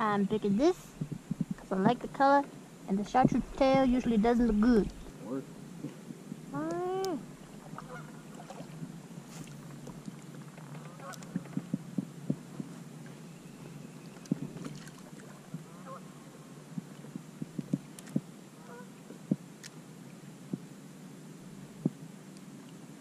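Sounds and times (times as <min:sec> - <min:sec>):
geese honking: 0:07.7 - 0:08.7, 0:10.8 - 0:11.3, 0:15.7 - 0:16.1, 0:18.6 - 0:18.9.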